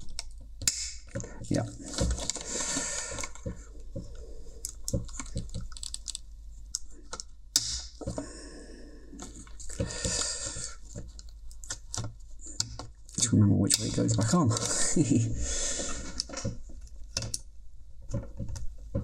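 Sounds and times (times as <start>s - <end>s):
plastic scraping: 1.1s - 6.2s.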